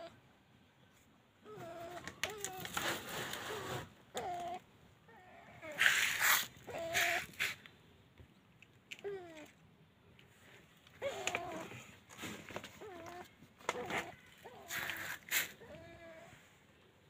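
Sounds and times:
rustling noise: 2.0 - 4.0, 5.7 - 7.7, 10.3 - 16.6
cat meowing: 12.8 - 16.4.

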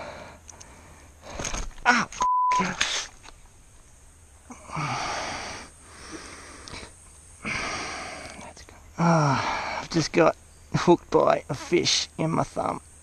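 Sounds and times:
man breathing in pain: 0.0 - 1.6, 4.5 - 8.4, 9.0 - 9.8
man grunting: 9.0 - 9.7.

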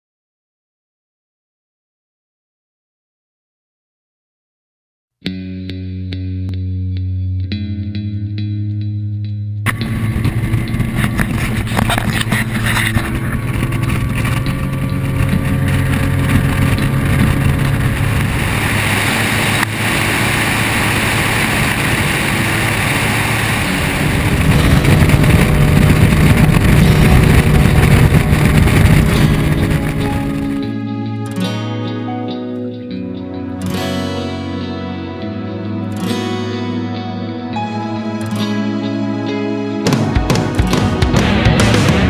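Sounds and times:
water rushing along hull: 9.7 - 30.7
outboard motor running: 9.7 - 30.8.

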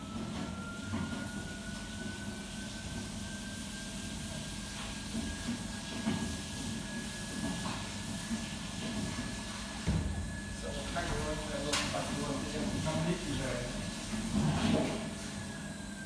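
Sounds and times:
thin rising whistle: 0.0 - 4.6.

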